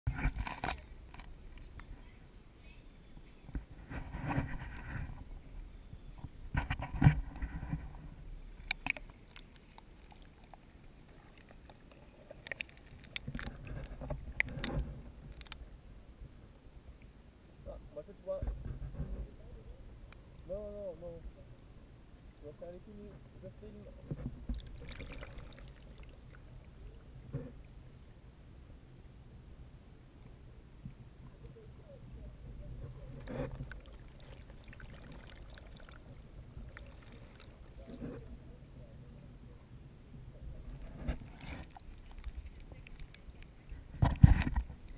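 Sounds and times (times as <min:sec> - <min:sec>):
camera clicks and knocks underwater: 0:00.1 - 0:02.0, 0:03.5 - 0:05.3, 0:06.2 - 0:10.6, 0:11.2 - 0:15.6, 0:24.0 - 0:25.7, 0:40.7 - 0:44.9
small clicks: 0:08.6 - 0:10.6, 0:11.3 - 0:15.6
muffled water sloshing: 0:24.0 - 0:27.7, 0:32.3 - 0:38.6, 0:40.4 - 0:44.9.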